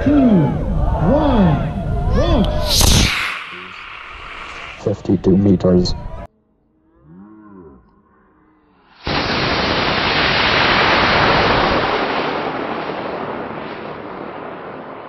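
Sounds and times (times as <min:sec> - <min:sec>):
rocket motor roaring: 0:02.4 - 0:05.5.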